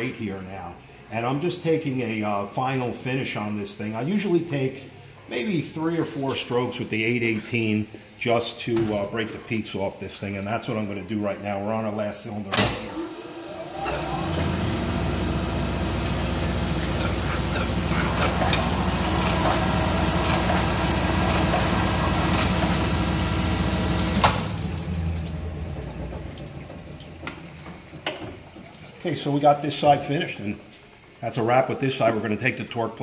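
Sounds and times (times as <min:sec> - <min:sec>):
machine shutting off with clunk: 0:12.5 - 0:28.4
oil washing: 0:12.9 - 0:31.5
honing machine grinding hum: 0:13.0 - 0:25.8.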